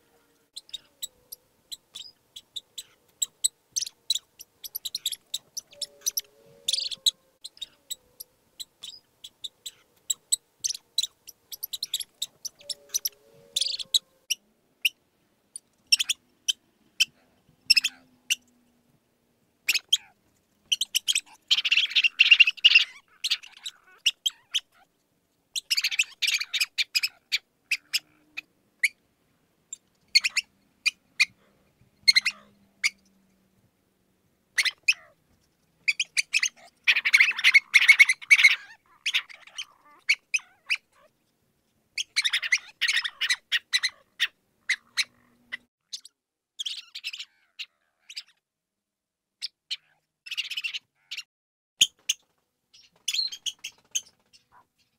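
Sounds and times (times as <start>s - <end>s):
mouse squeaking: 0.6s - 14.2s, 15.9s - 18.4s, 19.7s - 24.9s, 25.6s - 28.2s, 29.7s - 31.4s, 32.0s - 33.1s, 34.6s - 35.2s, 35.8s - 41.1s, 42.0s - 45.2s, 45.9s - 48.4s.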